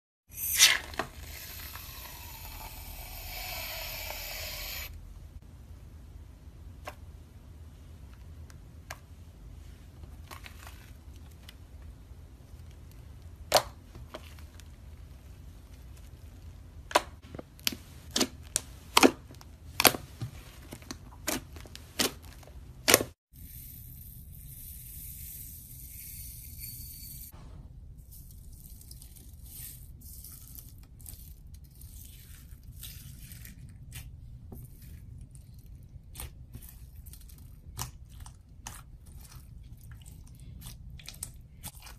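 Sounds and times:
beads poured with high hiss: 0.3s - 5.0s.

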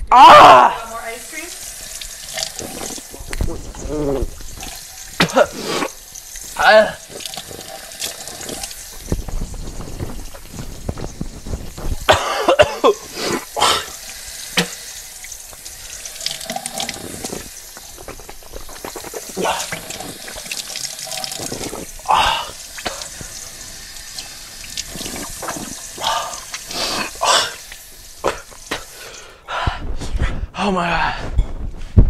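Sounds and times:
faucet running into a pot: 0.4s - 29.4s
person breathing loudly: 21.4s - 23.4s, 28.3s - 30.5s.

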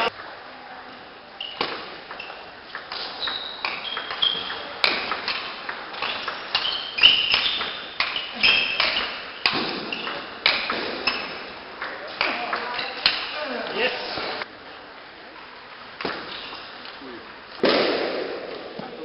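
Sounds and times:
table tennis ball clicking: 2.1s - 8.2s.

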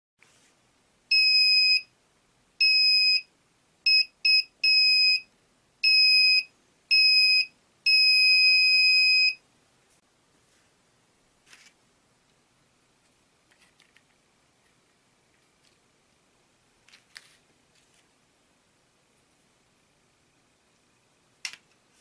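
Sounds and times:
buzzer beeping: 1.1s - 1.9s, 3.9s - 5.2s, 5.8s - 9.4s.

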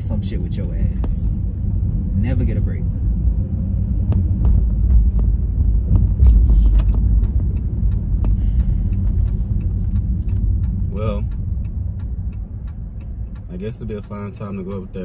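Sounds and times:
car road and engine rumble: 0.0s - 15.0s.

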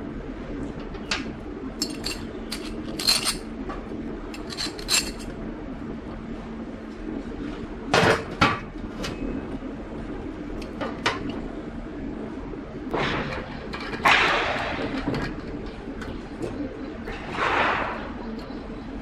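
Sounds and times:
steady low hum: 0.0s - 19.0s
metal tools clinking: 1.8s - 3.4s, 4.4s - 5.3s.

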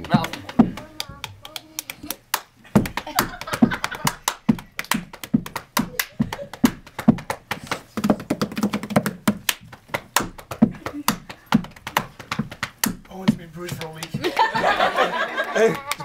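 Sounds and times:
low body percussion thumps: 0.0s - 1.6s, 2.7s - 14.3s
sharp hand taps: 2.8s - 14.2s.

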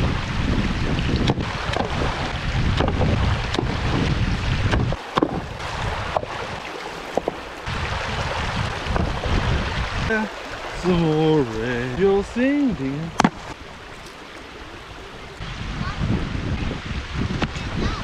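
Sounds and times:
wind buffeting microphone: 0.0s - 18.0s
rocks knocking and splashing: 1.0s - 14.5s
river rushing over rocks: 4.9s - 15.4s.

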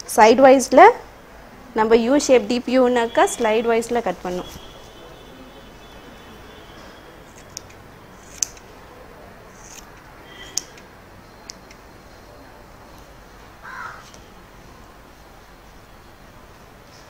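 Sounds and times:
soft rustle: 3.4s - 5.0s
scissors snipping hair: 7.3s - 8.7s, 9.6s - 10.9s.

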